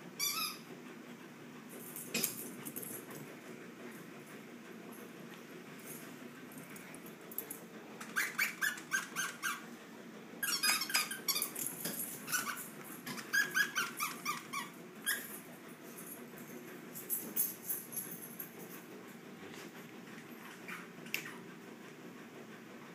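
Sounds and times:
dogs making high-pitched sounds: 8.0s - 9.6s, 10.4s - 11.7s, 12.3s - 15.4s.

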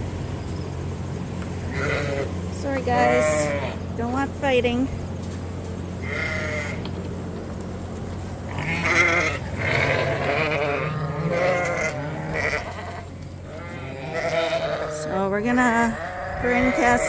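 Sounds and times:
sheep bleating: 1.7s - 3.8s, 6.0s - 6.9s, 8.5s - 17.0s.

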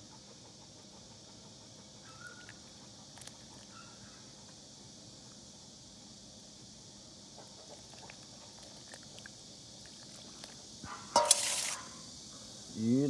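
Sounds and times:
insects chirring: 0.0s - 13.0s
ladle clinking in a pot: 11.2s - 11.8s.

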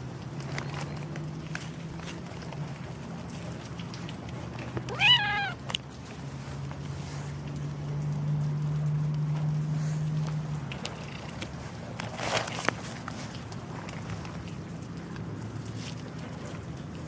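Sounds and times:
cat meowing: 4.8s - 5.6s.

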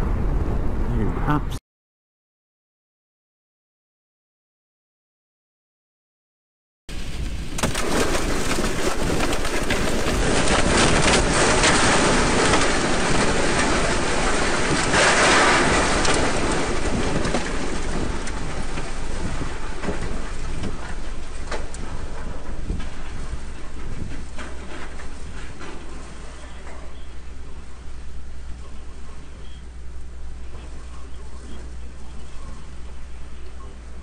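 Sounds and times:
loud rushing wind: 0.0s - 1.5s
hail hitting truck body: 6.9s - 29.2s.

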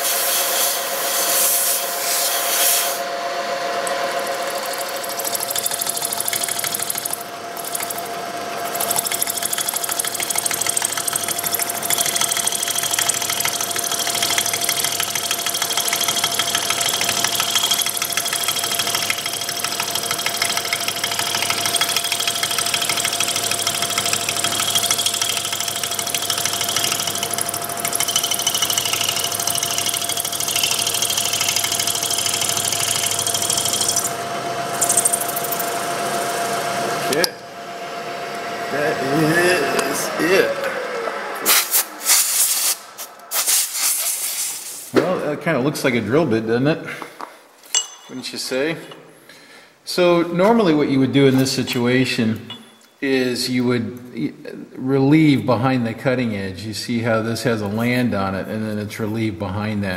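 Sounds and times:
high-pitched machine whine: 0.0s - 42.1s
milling machine hum: 0.6s - 41.5s.

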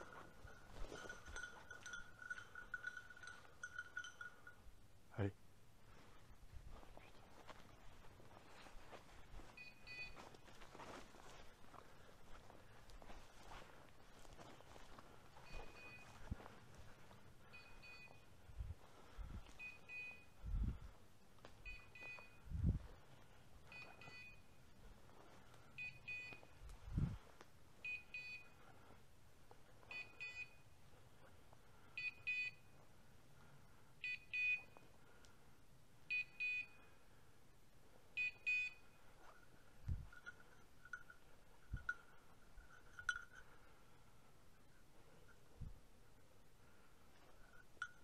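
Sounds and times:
footsteps through bracken: 5.9s - 17.5s
high double beep of dog collar: 9.6s - 10.2s, 15.4s - 16.3s, 17.5s - 18.3s, 19.6s - 20.4s, 21.6s - 22.6s, 23.7s - 24.5s, 27.8s - 28.6s, 29.9s - 30.6s.

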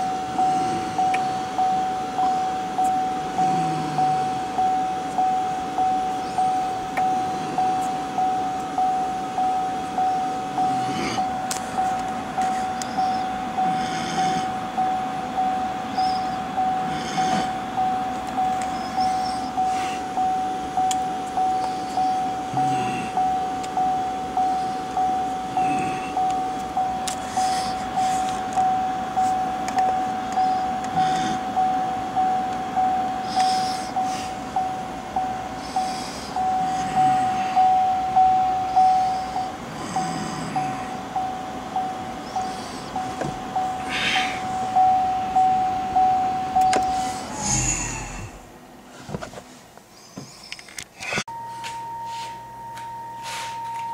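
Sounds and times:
dashboard warning chime: 0.0s - 48.7s, 51.2s - 53.9s.

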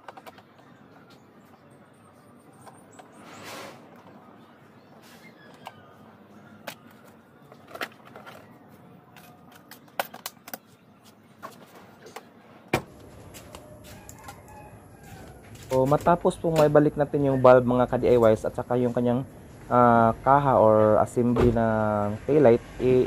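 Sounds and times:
clicks and knocks of car parts: 9.1s - 10.7s.

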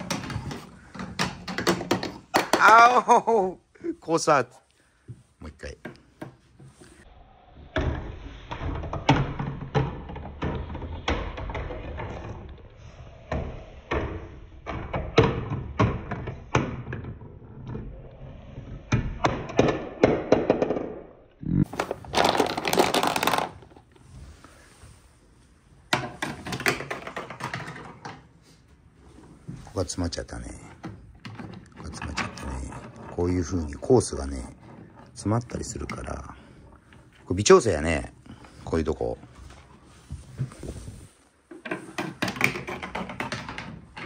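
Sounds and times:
ball rolling on plastic track: 0.0s - 2.8s, 7.7s - 24.2s, 25.9s - 28.4s, 29.1s - 40.8s, 41.4s - 44.0s
ball clacking on wooden pieces: 0.0s - 3.0s, 7.8s - 24.0s, 25.8s - 28.4s, 29.2s - 40.6s, 41.5s - 44.0s.

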